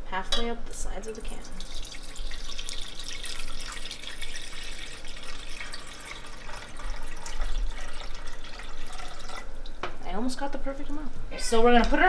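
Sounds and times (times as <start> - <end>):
water pouring into a saucepan: 1.2 - 9.8.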